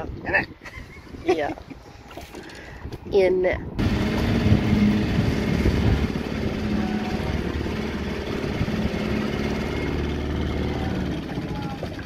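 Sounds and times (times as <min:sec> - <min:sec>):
outboard motor running: 0:03.8 - 0:12.0.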